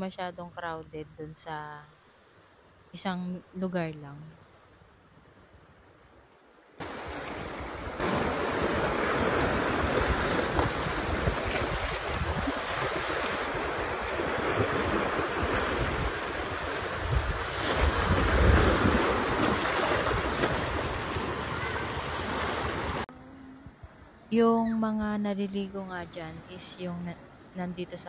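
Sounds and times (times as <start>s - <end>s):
sea surf washing on beach: 6.8s - 23.1s
wind buffeting microphone: 6.9s - 23.0s.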